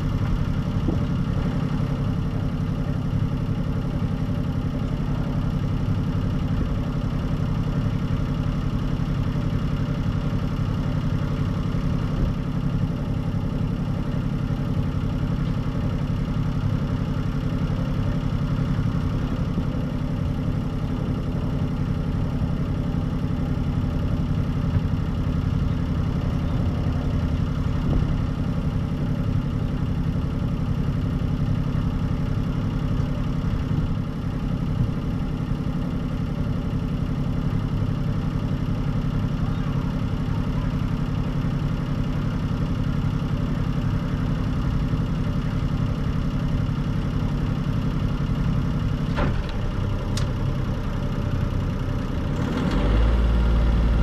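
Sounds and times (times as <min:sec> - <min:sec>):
diesel engine running low hum: 0:00.0 - 0:54.0.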